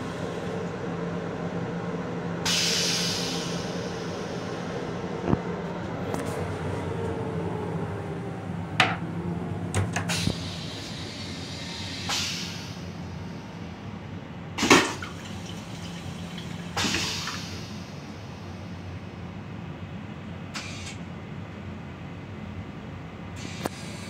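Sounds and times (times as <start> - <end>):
low train rumble: 0.0 - 24.0
toilet flush clicks: 14.6 - 17.5
toilet flush whoosh: 14.6 - 18.0.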